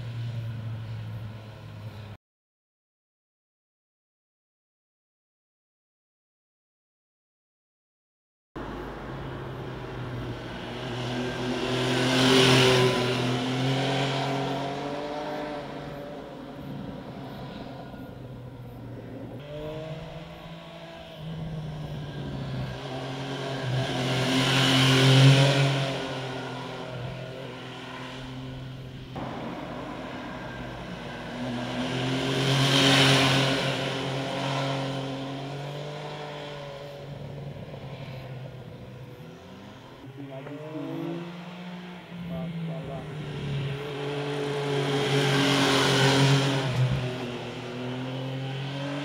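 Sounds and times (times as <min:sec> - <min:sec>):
motorcycle riding past: 0:08.6 - 0:49.0.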